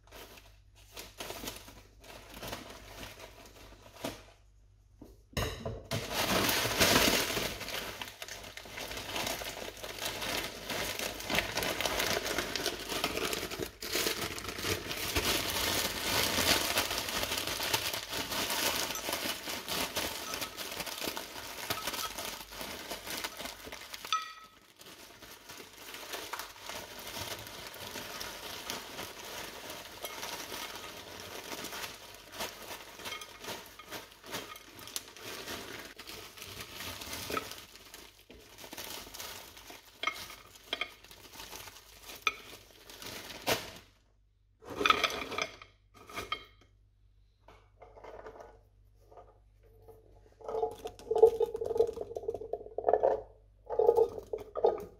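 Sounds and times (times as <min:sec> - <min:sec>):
plastic bag crinkling: 0:00.0 - 0:04.6, 0:05.9 - 0:44.0, 0:50.0 - 0:54.9
vegetables pouring into glass dish: 0:50.3 - 0:54.9.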